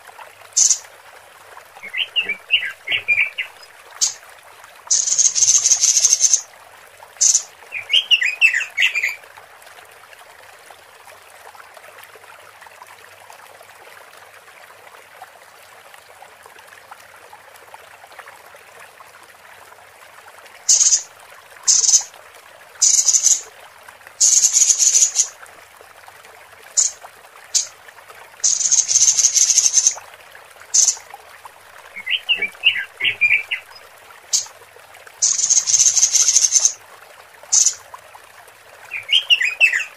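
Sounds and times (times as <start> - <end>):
bird twittering phrase: 0.6 - 0.8, 4.9 - 6.4, 7.2 - 9.1, 20.7 - 21.0, 21.7 - 22.1, 22.8 - 23.4, 24.2 - 25.3, 28.4 - 30.0, 30.8 - 31.0, 35.2 - 36.8, 37.5 - 37.8
bird harsh buzz calls: 4.9 - 6.4, 20.7 - 21.0, 21.7 - 22.1, 22.8 - 23.4, 24.2 - 25.3, 28.4 - 30.0, 30.8 - 31.0, 35.2 - 36.8.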